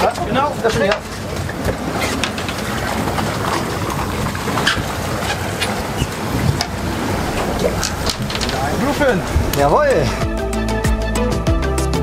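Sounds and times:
wind and sea rushing: 0.0 - 11.3
boat engine humming: 0.0 - 12.0.

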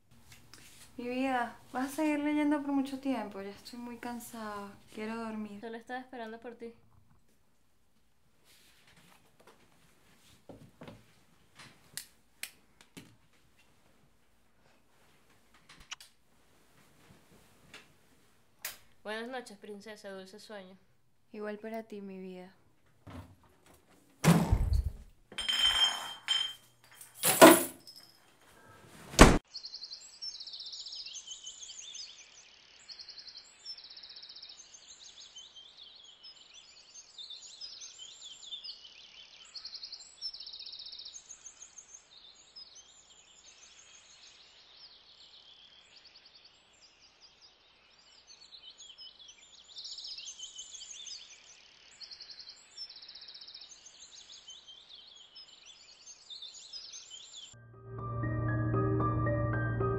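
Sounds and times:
knocks and clinks: 25.3 - 28.2.

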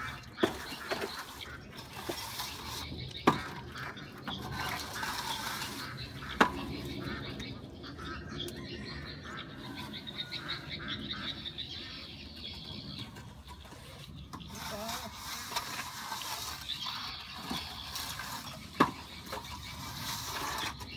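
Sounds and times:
straightedge scraping plaster: 0.0 - 7.5, 12.3 - 20.9.

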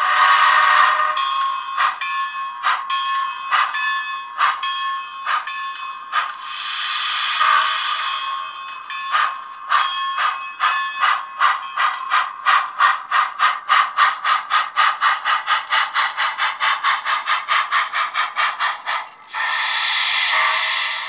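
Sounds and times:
synthesised steam locomotive chuffs: 0.0 - 21.0
steady steam hiss: 6.2 - 8.8, 15.1 - 21.0.

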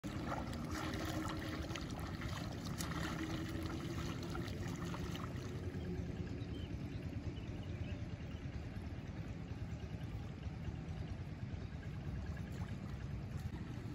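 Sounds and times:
water and mud sloshing: 0.0 - 6.7, 11.4 - 13.9
steady low rumble: 0.0 - 13.9.

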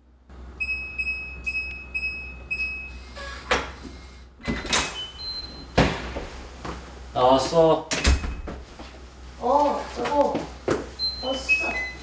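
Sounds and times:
keypad lock beeping: 0.6 - 3.0
door opening: 4.4 - 6.0, 7.9 - 8.6.

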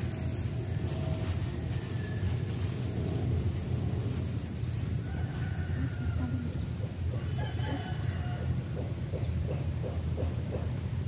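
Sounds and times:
wind rumbling on microphone: 0.0 - 11.0
faint rooster crowing: 1.6 - 2.9, 4.7 - 9.1.

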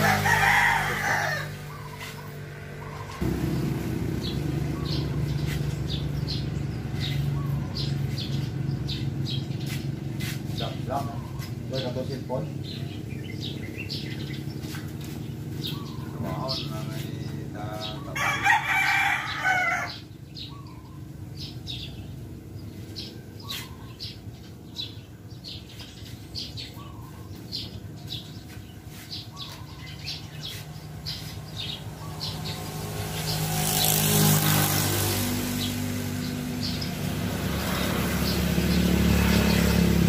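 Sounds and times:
rooster crowing: 0.0 - 2.0, 18.1 - 20.1
steady low hum: 0.0 - 10.9
vehicle passing: 0.0 - 40.0.

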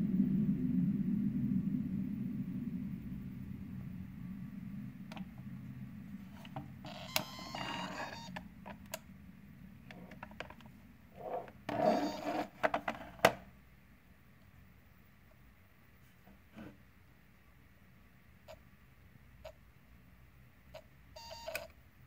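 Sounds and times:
low hum: 0.0 - 20.8
short scraping bursts: 11.2 - 12.6.

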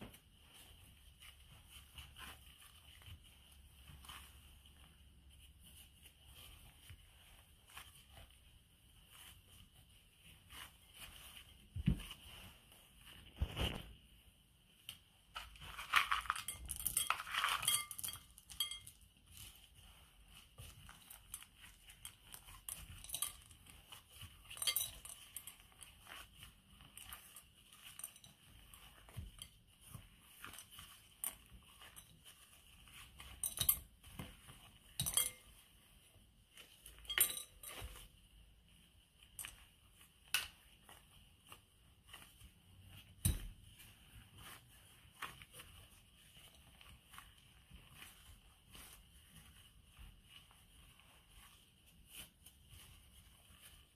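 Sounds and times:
dough clicking against glass bowl: 15.9 - 19.1.

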